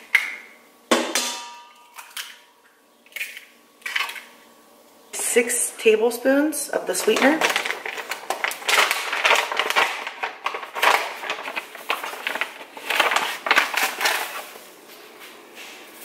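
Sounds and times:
plastic pouch crinkling: 6.9 - 14.7.

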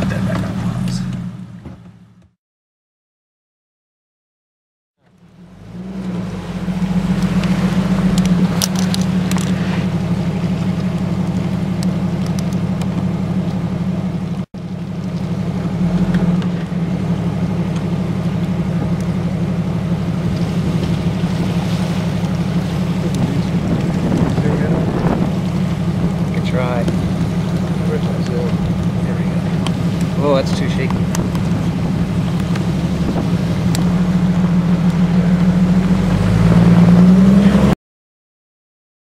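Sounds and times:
car engine running at low speed: 0.0 - 2.4, 5.0 - 37.8
heavy low rumble: 0.0 - 2.4, 5.0 - 37.8.

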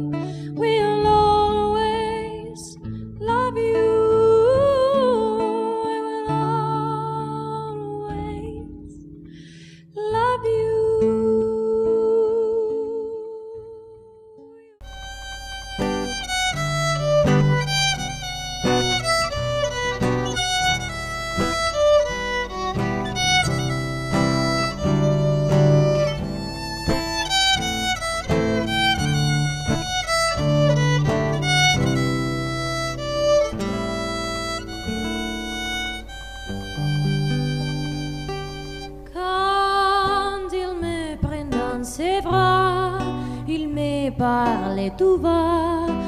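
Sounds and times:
violin melody: 14.8 - 40.9
plucked acoustic guitar chords: 14.8 - 46.0.

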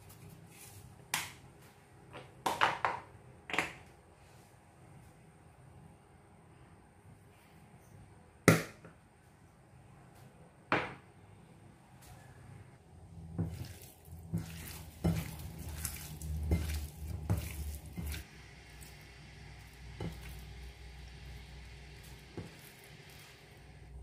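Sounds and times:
hands squelching raw chicken: 13.4 - 19.0.

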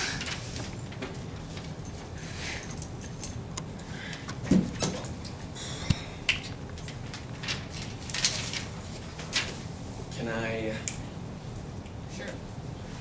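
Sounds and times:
steady low hum: 0.0 - 13.0
paper rustling: 6.8 - 9.7.

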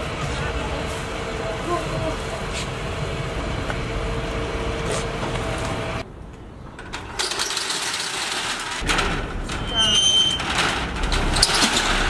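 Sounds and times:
metal shutter slats rattling: 6.7 - 12.0.

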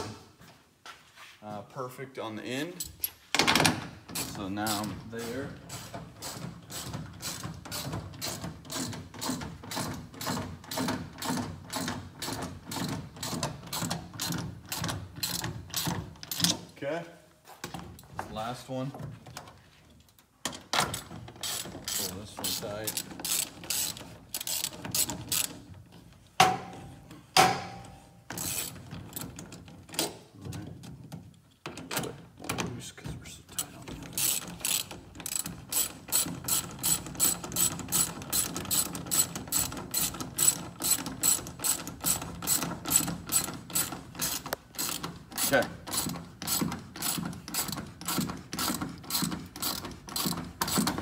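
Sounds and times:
sharp knocks: 26.4 - 26.8, 27.4 - 27.9.

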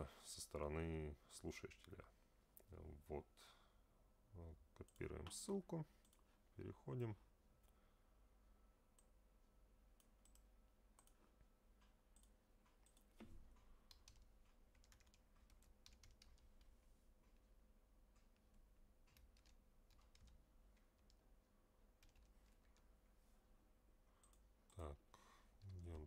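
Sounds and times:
keyboard typing: 10.0 - 11.2, 11.8 - 17.4, 18.1 - 21.2, 21.9 - 22.9.

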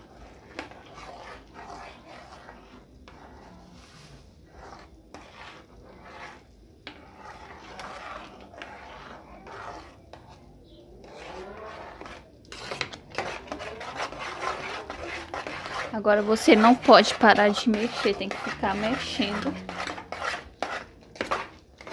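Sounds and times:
metal spoon scraping a pot: 0.0 - 21.9.

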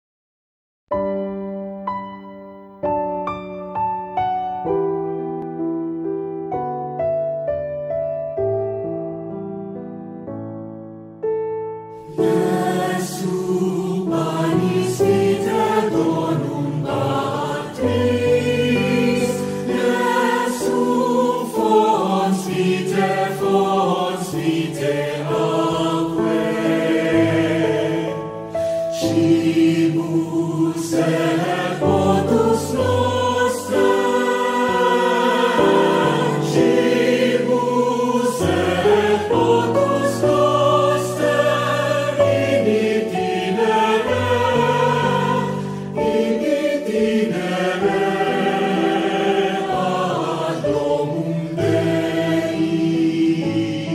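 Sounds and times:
choir singing held chords: 12.0 - 53.9.

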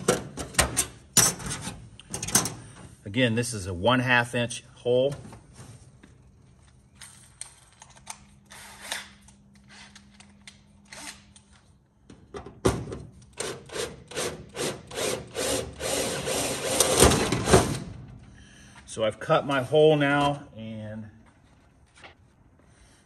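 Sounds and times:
drill hum: 13.4 - 17.0
power drill cutting metal: 13.7 - 17.0.

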